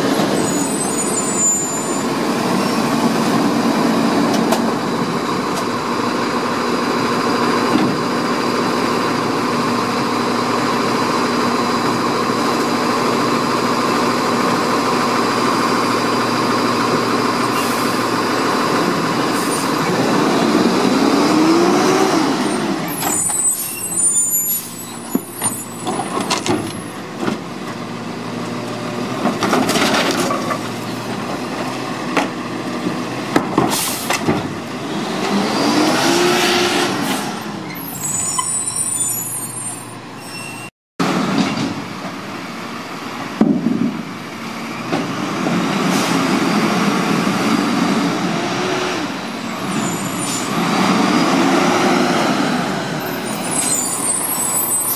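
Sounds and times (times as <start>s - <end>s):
garbage truck approaching: 0.0s - 54.9s
high brake squeals: 0.2s - 2.9s, 19.3s - 19.8s, 22.4s - 27.0s, 37.6s - 40.8s, 49.6s - 50.6s, 53.0s - 54.9s
garbage truck diesel engine revving: 2.0s - 23.3s, 30.3s - 38.2s, 44.0s - 54.9s.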